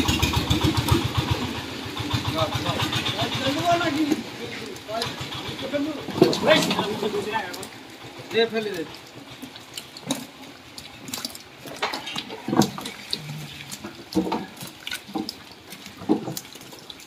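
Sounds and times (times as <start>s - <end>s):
fish slapping on tarpaulin: 9.2s - 17.0s.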